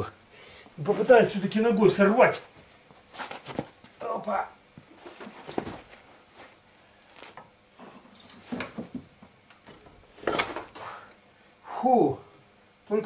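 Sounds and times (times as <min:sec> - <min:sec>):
wrench scuffs and knocks: 0:04.8 - 0:07.4.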